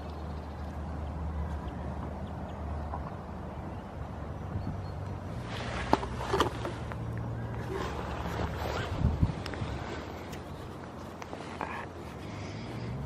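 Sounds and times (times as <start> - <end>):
microphone rumble: 7.6 - 10.2.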